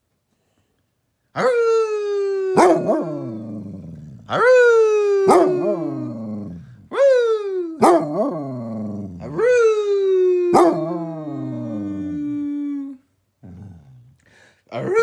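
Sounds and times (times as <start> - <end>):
dog howling: 1.4 - 13.0.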